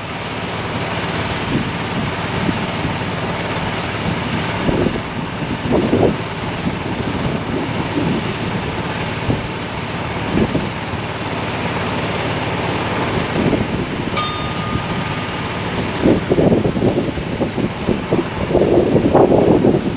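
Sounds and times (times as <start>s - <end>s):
wind buffeting microphone: 0.2s - 19.9s
short thin high tone: 14.2s - 16.3s.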